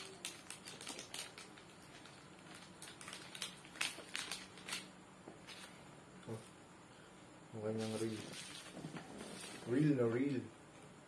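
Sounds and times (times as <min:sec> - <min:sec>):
plastic parts and packaging clicking: 0:00.0 - 0:04.9.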